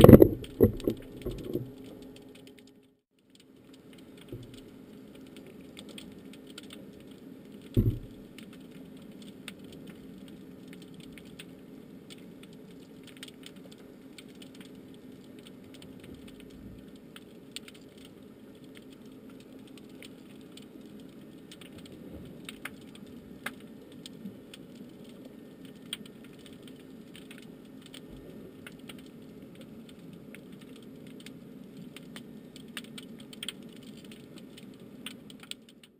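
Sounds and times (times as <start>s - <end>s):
sharp clicks and crackles: 0.0s - 35.9s
steady low underwater hum: 0.0s - 35.9s
loud dull thump: 7.8s - 8.1s.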